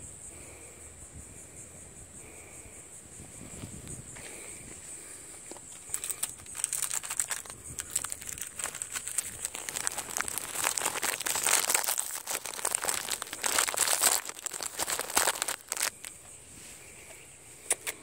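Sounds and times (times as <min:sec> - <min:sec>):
cellophane wrapper crinkling: 0:05.6 - 0:16.2.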